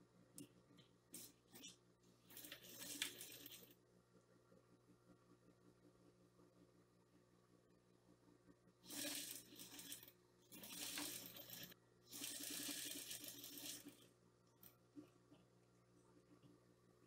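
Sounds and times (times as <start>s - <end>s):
sewing machine stitching: 2.3s - 3.7s, 8.8s - 14.0s.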